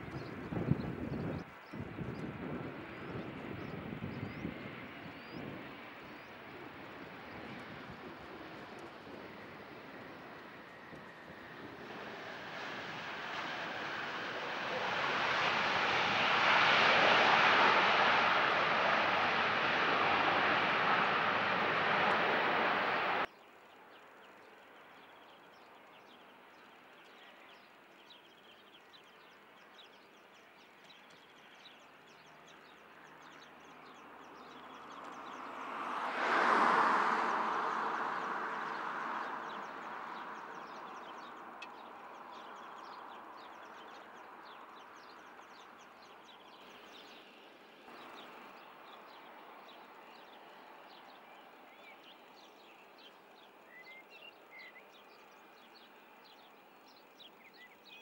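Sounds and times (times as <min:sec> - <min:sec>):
loud jet noise: 0:02.2 - 0:23.3
jet engines hissing: 0:04.6 - 0:23.3
small birds chirping: 0:38.6 - 0:58.0.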